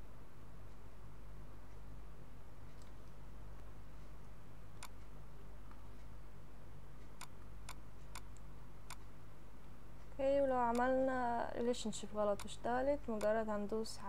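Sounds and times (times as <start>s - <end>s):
low electrical hum: 0.0s - 14.0s
computer mouse clicks: 10.7s - 12.6s, 13.2s - 13.4s.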